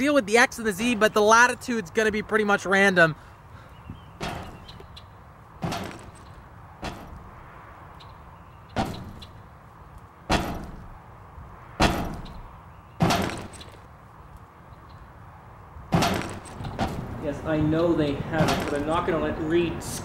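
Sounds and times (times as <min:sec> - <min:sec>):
sharp echoing bangs: 0:04.1 - 0:04.8, 0:08.7 - 0:09.5, 0:10.2 - 0:11.0, 0:11.7 - 0:13.9, 0:15.9 - 0:17.3, 0:18.2 - 0:19.2.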